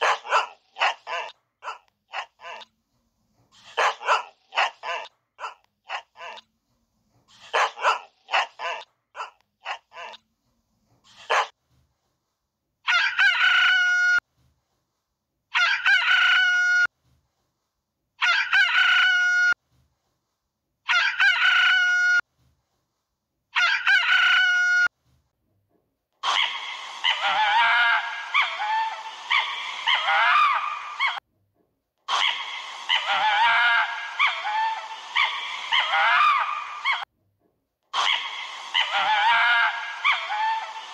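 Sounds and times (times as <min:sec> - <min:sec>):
animal call: 0:00.0 - 0:02.7, 0:20.9 - 0:22.2, 0:23.6 - 0:24.9, 0:32.1 - 0:37.0, 0:37.9 - 0:40.9
dog barking: 0:00.0 - 0:02.7, 0:03.6 - 0:06.5, 0:07.4 - 0:10.2, 0:11.1 - 0:11.6, 0:15.6 - 0:16.1, 0:20.9 - 0:21.5.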